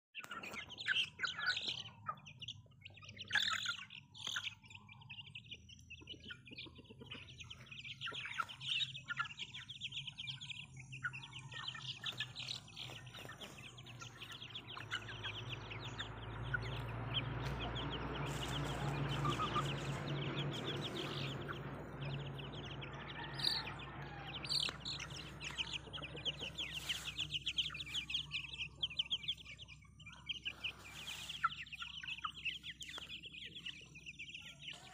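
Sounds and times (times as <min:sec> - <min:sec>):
chickens clucking: 0:00.2 - 0:34.9
chicks peeping: 0:00.2 - 0:34.9
low rumbling noise: 0:14.8 - 0:26.7.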